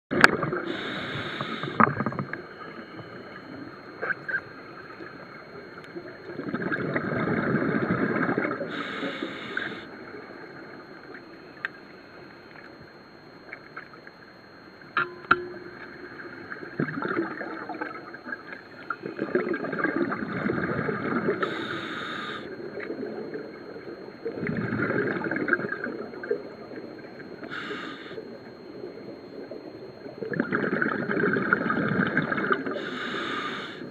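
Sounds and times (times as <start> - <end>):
gurgling exhaled bubbles: 0.1 - 2.8, 6.0 - 8.8, 16.1 - 21.5, 24.3 - 26.4, 30.2 - 32.8
regulator inhale hiss: 0.6 - 1.9, 8.6 - 9.9, 21.4 - 22.6, 27.4 - 28.2, 32.7 - 33.9.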